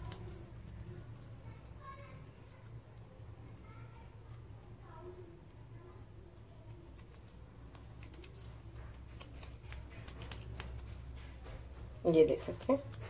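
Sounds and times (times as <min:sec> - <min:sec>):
hands patting mashed potato: 0:00.0 - 0:13.0
low steady hum: 0:00.0 - 0:13.0.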